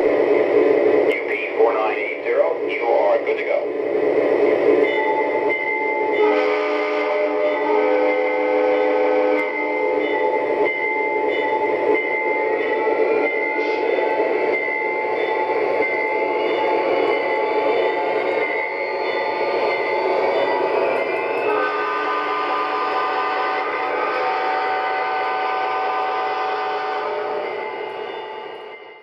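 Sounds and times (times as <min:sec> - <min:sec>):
model train diesel engine sounds: 0:00.0 - 0:29.0
model train rolling on track: 0:00.0 - 0:29.0.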